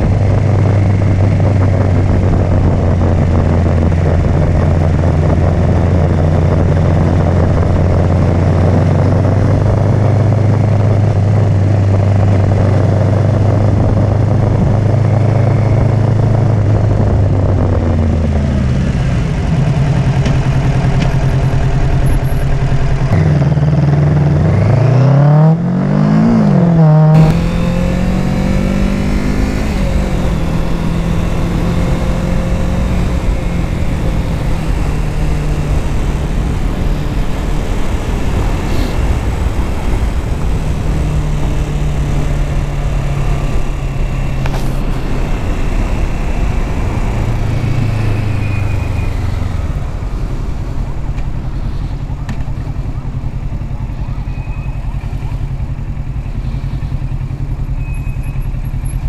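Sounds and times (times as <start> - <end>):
wind rush on microphone: 0.0 - 23.2, 27.1 - 53.3
motorcycle engine revving: 0.0 - 59.0.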